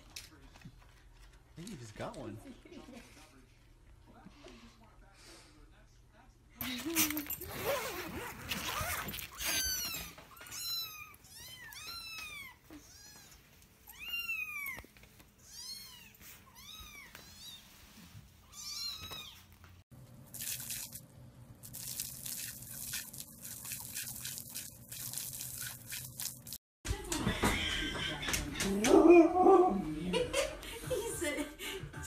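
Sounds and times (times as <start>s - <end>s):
water spraying from a garden hose: 20.3s - 26.6s.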